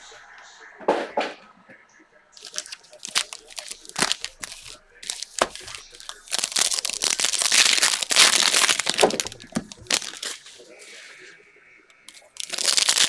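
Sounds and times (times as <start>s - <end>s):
wrapper tearing and crinkling: 2.4s - 10.6s, 12.1s - 13.0s.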